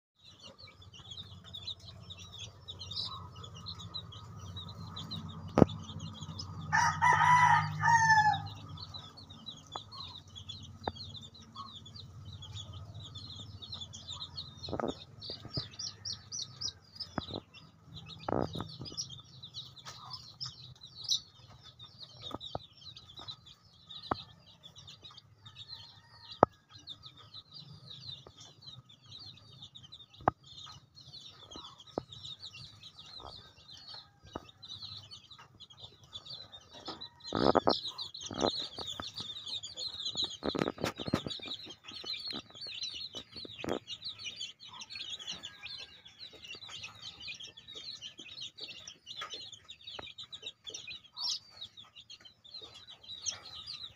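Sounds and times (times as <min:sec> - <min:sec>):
chicks peeping: 0:00.2 - 0:53.9
adult chicken calling: 0:06.7 - 0:08.5.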